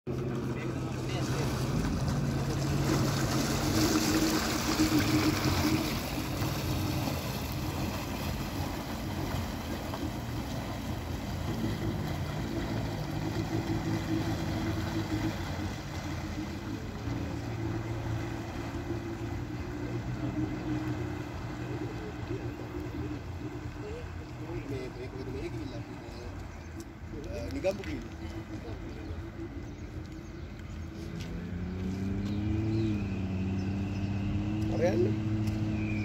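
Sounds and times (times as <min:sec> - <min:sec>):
jet ski engine running: 0:00.1 - 0:36.0.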